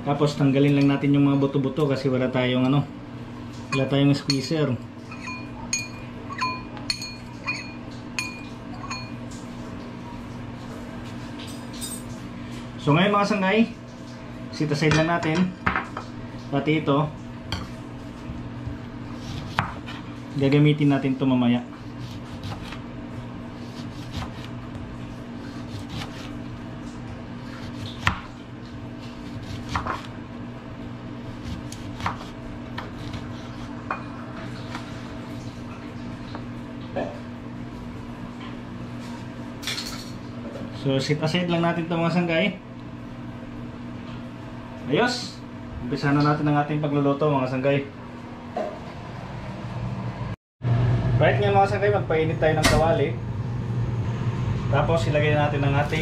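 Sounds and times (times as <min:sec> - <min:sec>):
steady low hum: 0:00.0 - 0:56.0
fork clinking on ceramic bowl: 0:05.1 - 0:09.2.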